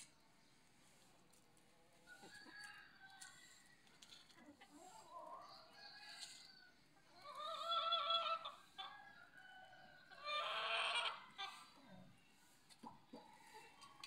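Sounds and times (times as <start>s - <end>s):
chickens calling: 4.6s - 14.0s.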